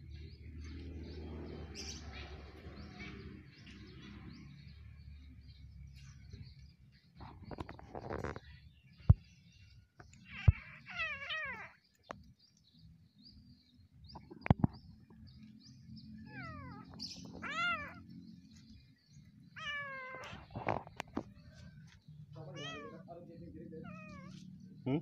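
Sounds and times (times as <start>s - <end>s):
kitten meowing: 10.2s - 11.8s, 16.2s - 18.1s, 19.6s - 20.6s, 22.5s - 23.0s, 23.8s - 24.4s.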